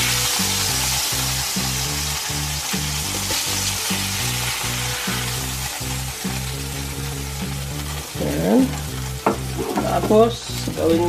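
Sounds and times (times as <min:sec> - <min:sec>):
background music with beat: 0:00.0 - 0:11.0
steaks sizzling in oil: 0:00.0 - 0:11.0.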